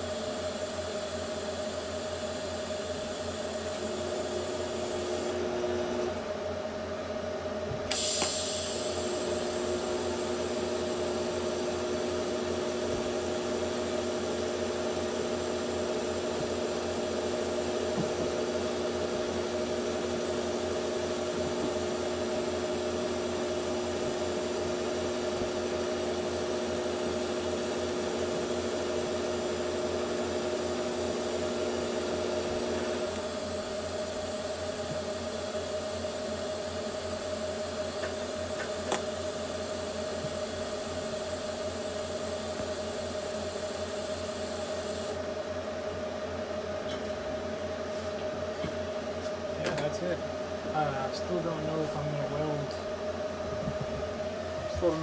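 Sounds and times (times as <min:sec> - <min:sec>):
welding arc hissing and humming: 0:00.0 - 0:06.3, 0:07.8 - 0:45.2
steady machine hum: 0:00.0 - 0:55.0.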